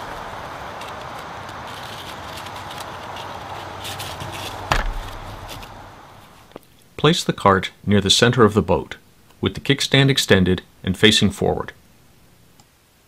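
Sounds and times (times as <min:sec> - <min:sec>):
steady hiss: 0:00.0 - 0:13.0
sharp knock: 0:04.6 - 0:05.6.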